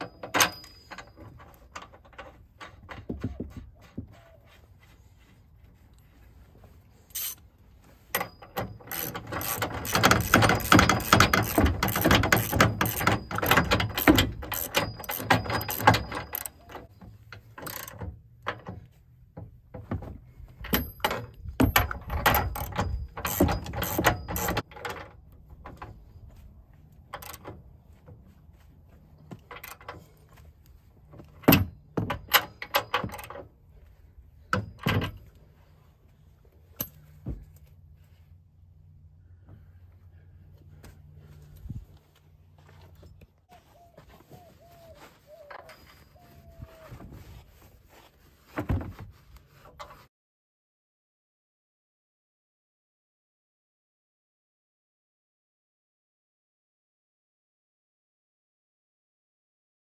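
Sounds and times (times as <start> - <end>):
ratchet wrench clicking: 8.8 - 16.6, 22.6 - 24.6.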